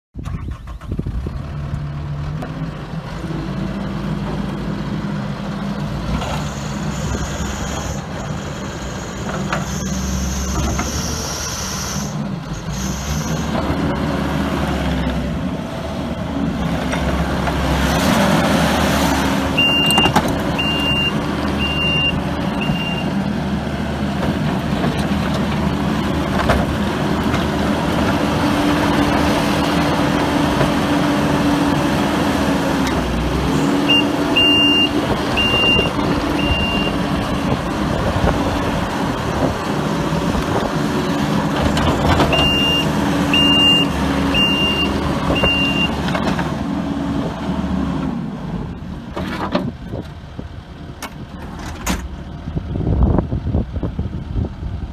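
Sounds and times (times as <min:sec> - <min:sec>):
diesel engine running: 0:00.2 - 0:54.9
backup alarm beeping: 0:42.4 - 0:46.0.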